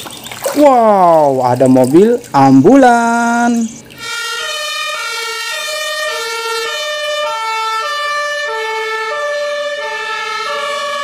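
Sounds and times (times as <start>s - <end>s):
ambulance two-tone siren: 4.0s - 11.0s.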